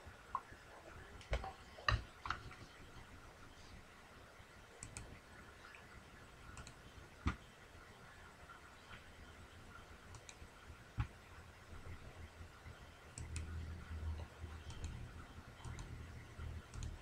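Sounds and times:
computer mouse clicks: 4.8 - 5.1, 6.5 - 7.4, 10.1 - 10.4, 13.1 - 13.6, 14.6 - 16.0, 16.6 - 17.0.

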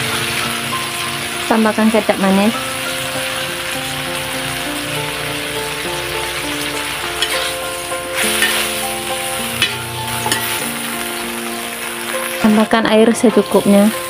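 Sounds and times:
food sizzling in a wok: 0.0 - 14.0
metal spatula scraping pan: 7.2 - 11.1.

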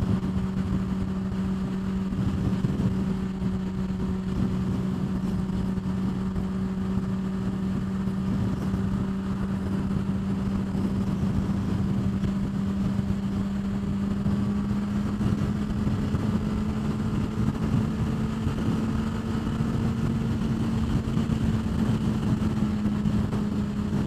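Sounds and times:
motorcycle engine cruising: 0.0 - 24.0
wind rushing: 0.0 - 24.0.

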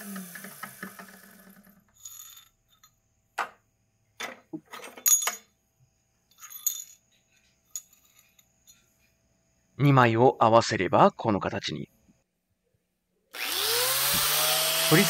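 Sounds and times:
metal pieces clinking on concrete: 1.9 - 3.0, 4.7 - 5.5, 6.3 - 8.8.

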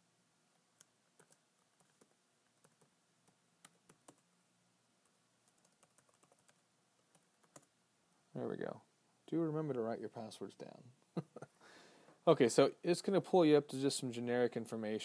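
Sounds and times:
typing on laptop keyboard: 0.8 - 4.3, 5.0 - 7.7.

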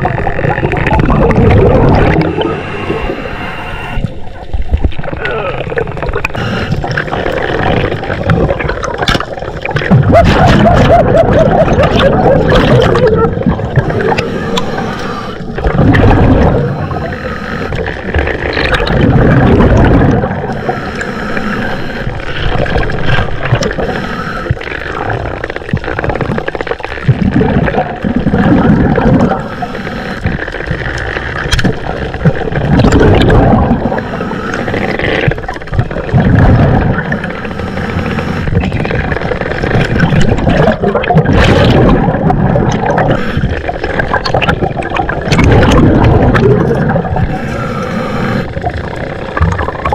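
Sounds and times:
gurgling exhaled bubbles: 0.0 - 49.9
breathing through scuba regulator: 1.6 - 4.0, 6.3 - 7.3, 13.7 - 15.7, 16.4 - 18.1, 19.8 - 24.7, 29.2 - 30.8, 33.6 - 35.4, 36.9 - 38.7, 42.8 - 44.0, 47.0 - 48.6.

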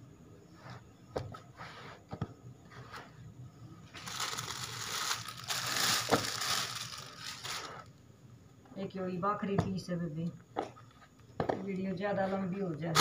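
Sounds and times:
cloth rustling and crinkling: 3.9 - 7.9.

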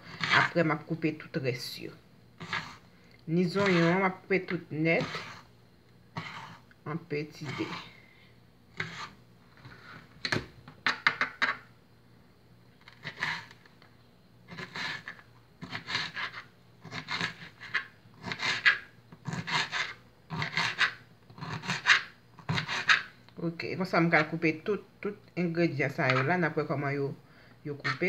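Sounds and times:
knife cutting pepper on plastic board: 0.0 - 0.6, 2.4 - 2.8, 3.4 - 5.5, 6.1 - 6.7, 7.4 - 7.9, 8.7 - 10.4, 12.8 - 13.7, 14.5 - 23.1, 27.8 - 28.0.

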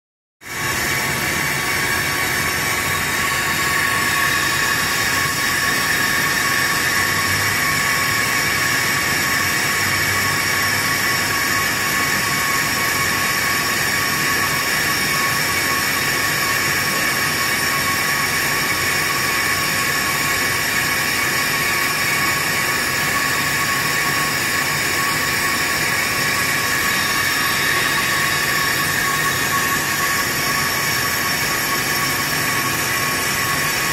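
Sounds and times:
brake lathe motor whine: 0.5 - 33.9.

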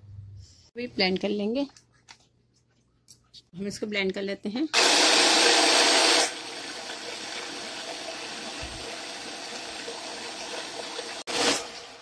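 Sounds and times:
electric chopper grinding crumbs: 4.8 - 12.0.

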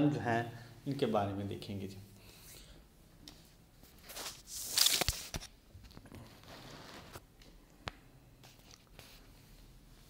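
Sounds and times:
rustling close to microphone: 3.9 - 7.2.

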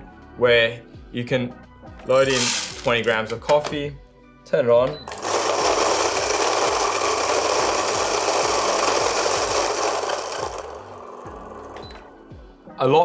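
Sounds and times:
electric coffee grinder grinding: 2.3 - 2.9, 5.1 - 12.2.

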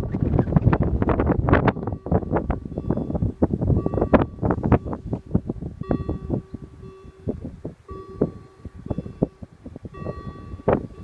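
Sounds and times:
wind buffeting microphone: 0.0 - 11.0
level crossing bell ringing: 5.8 - 11.0.

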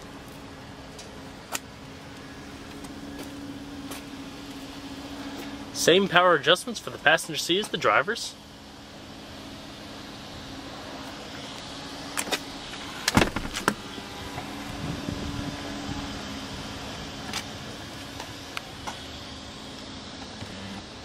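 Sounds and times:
electric seat motor whirring: 8.4 - 21.0.

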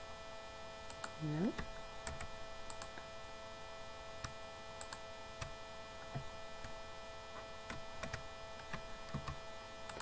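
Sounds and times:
electrical hum: 0.0 - 10.0
computer mouse clicks: 0.9 - 3.0, 4.2 - 5.5, 7.7 - 10.0.

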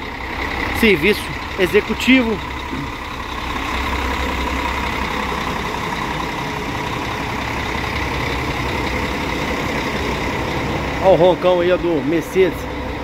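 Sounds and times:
coach engine idling: 0.0 - 13.0.

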